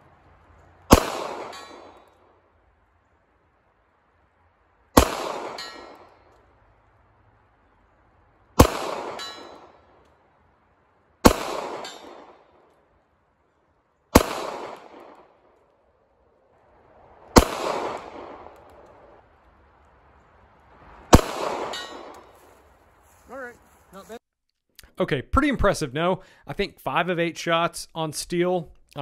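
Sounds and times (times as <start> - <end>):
pistol shots echoing: 0.9 - 2.2, 4.9 - 6.4, 8.6 - 10.0, 11.2 - 12.7, 14.1 - 15.6, 17.3 - 19.1, 21.1 - 22.4.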